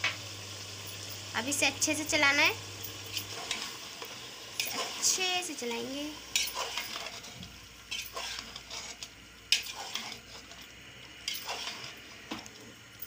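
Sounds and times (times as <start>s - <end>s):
faint sizzle: 0.0s - 13.0s
metal ladle scraping a pot: 4.6s - 5.1s, 6.3s - 10.6s, 11.2s - 12.1s.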